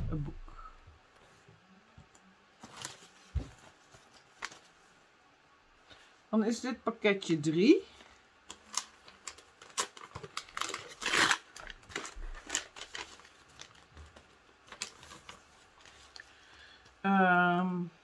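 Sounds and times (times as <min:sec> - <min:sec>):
wrapping paper crinkling: 0:08.4 - 0:16.4
paper ripping: 0:08.6 - 0:13.9.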